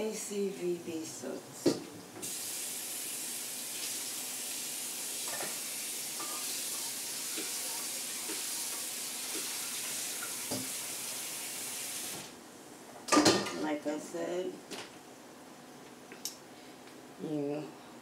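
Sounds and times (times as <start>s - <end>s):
water running: 2.2s - 12.4s.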